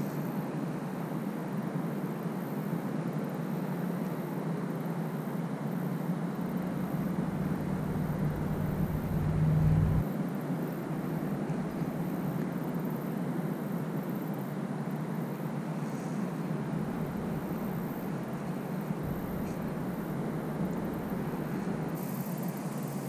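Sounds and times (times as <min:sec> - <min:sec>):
low outdoor hum: 0:06.3 - 0:10.0, 0:10.6 - 0:13.1, 0:15.9 - 0:22.8
deep rumble: 0:06.6 - 0:10.0, 0:16.8 - 0:21.8.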